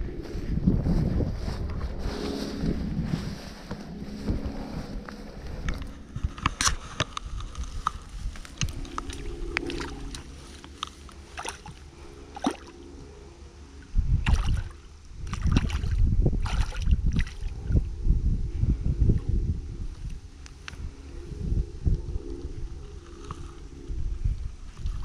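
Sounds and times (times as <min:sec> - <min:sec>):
water sloshing and dripping: 0:08.8 - 0:12.8, 0:14.2 - 0:17.5.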